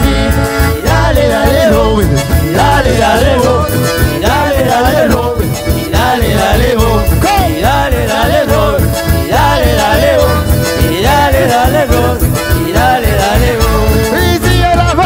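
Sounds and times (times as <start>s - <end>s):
accordion melody: 0.0s - 15.0s
live band music: 0.0s - 15.0s.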